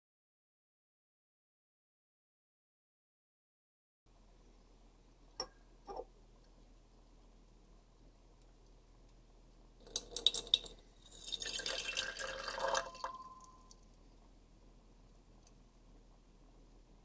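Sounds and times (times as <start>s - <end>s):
glass ringing: 5.4s - 6.0s, 12.2s - 13.7s
liquid pouring into glass: 9.8s - 13.8s.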